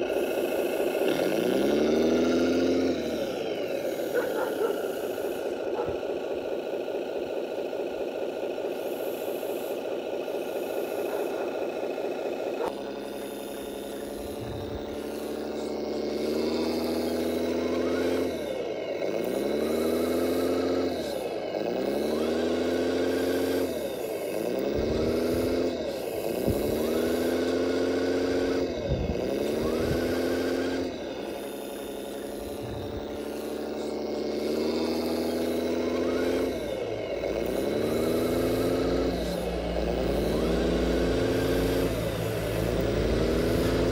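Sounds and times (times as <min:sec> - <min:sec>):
toy truck engine running: 0:00.0 - 0:43.9.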